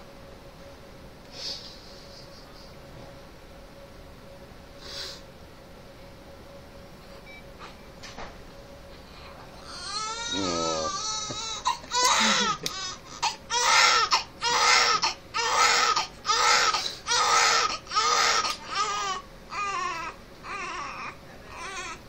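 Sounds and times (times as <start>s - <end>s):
newborn baby crying: 9.6s - 22.0s.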